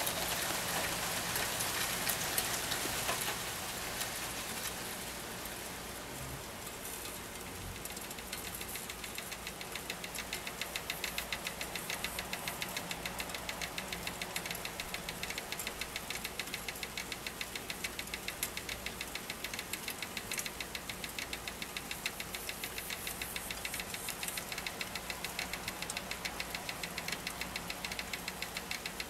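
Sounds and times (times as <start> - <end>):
moths pattering on surface: 6.7 - 29.0
rapid even tapping: 7.8 - 29.0.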